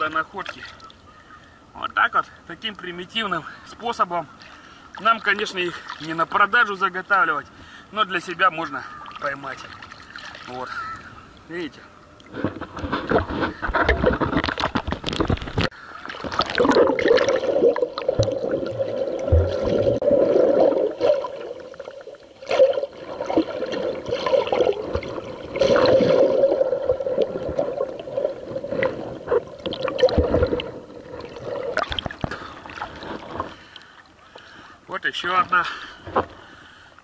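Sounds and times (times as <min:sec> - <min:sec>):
water splashes: 0:03.8 - 0:36.6
underwater sloshing and gurgling: 0:08.5 - 0:34.9.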